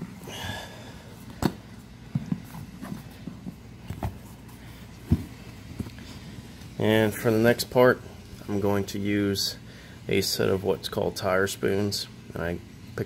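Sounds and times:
knocks and thumps: 5.0s - 5.9s.

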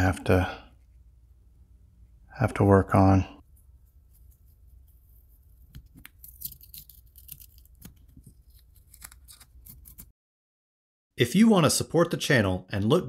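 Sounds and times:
tape peeling with crackling rips: 5.3s - 10.1s.

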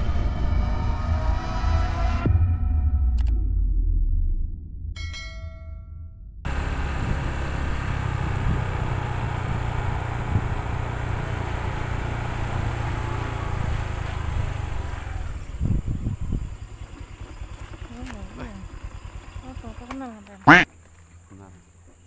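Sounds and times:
road and wind noise: 6.5s - 22.0s
truck engine rumble: 6.5s - 22.0s.

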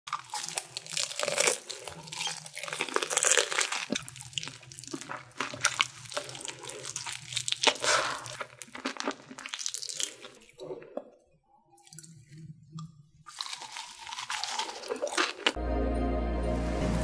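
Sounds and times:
crunching fried chicken: 0.1s - 10.4s, 13.3s - 15.6s.

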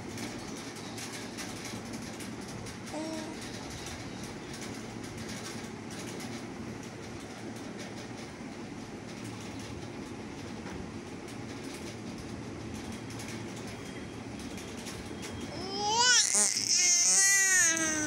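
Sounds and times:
baby babbling: 2.9s - 3.4s, 15.5s - 18.0s.

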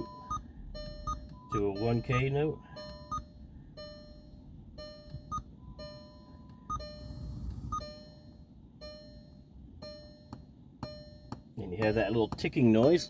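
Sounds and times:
short beeps: 0.0s - 12.6s
sharp ticks through speakers: 7.5s - 13.0s.

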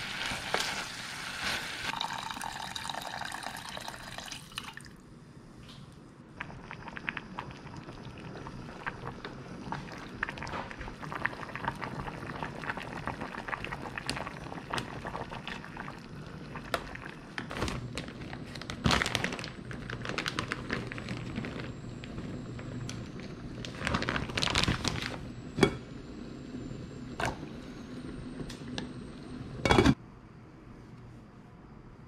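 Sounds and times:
soup bubbling in a pot: 0.0s - 5.0s, 6.3s - 17.5s.

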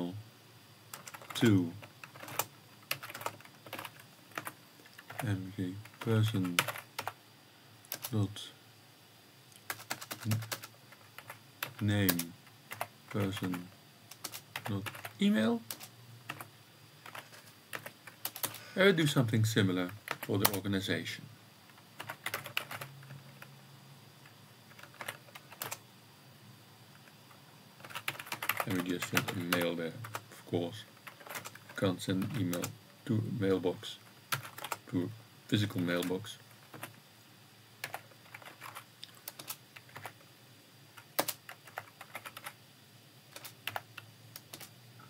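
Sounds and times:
keyboard typing: 0.9s - 7.2s, 7.9s - 8.2s, 9.6s - 18.7s, 19.8s - 20.6s, 21.7s - 23.5s, 24.2s - 25.8s, 27.0s - 30.2s, 30.9s - 32.8s, 34.1s - 34.9s, 35.9s - 37.0s, 37.8s - 40.2s, 41.0s - 42.6s, 43.3s - 44.7s.

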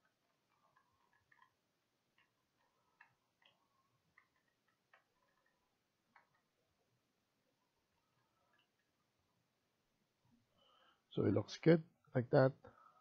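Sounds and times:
mouse and keyboard clicks: 0.0s - 6.6s.

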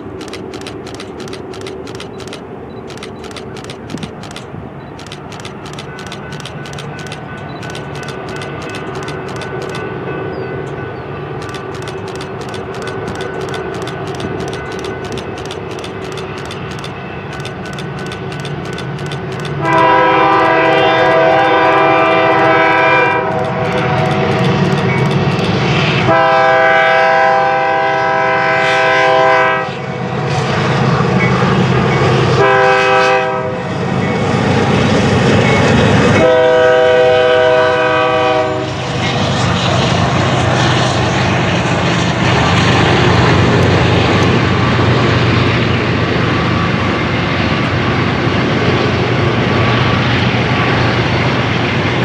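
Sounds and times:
locomotive diesel engines: 0.0s - 28.5s, 33.4s - 52.0s
locomotive air horn: 19.6s - 24.3s, 26.0s - 29.8s, 32.4s - 33.7s, 36.2s - 38.8s.

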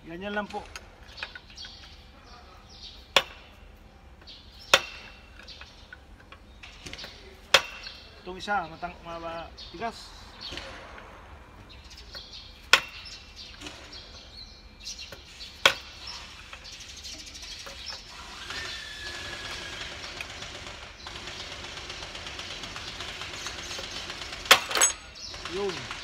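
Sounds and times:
hammer striking metal bar: 4.7s - 5.2s
light metal clinks: 24.5s - 25.3s.

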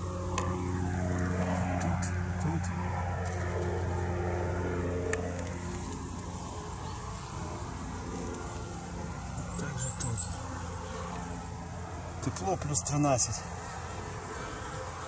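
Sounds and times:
distant engine hum: 0.0s - 15.0s.

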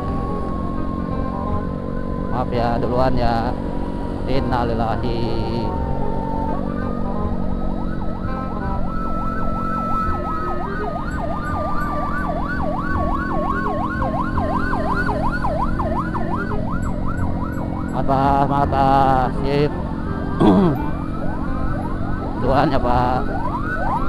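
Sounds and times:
ambulance siren yelp: 0.0s - 24.0s
motorcycle engines rumbling: 0.0s - 24.0s
road noise: 0.0s - 24.0s
steady siren tone: 0.0s - 24.0s.

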